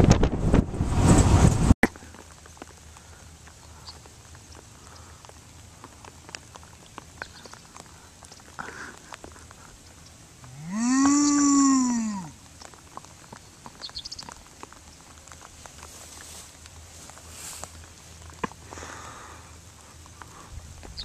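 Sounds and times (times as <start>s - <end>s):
cow mooing: 10.5s - 12.4s.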